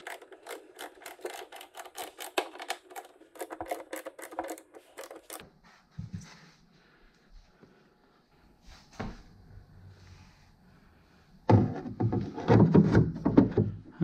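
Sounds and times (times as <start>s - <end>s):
small hardware clicking and rattling: 0.0s - 5.4s.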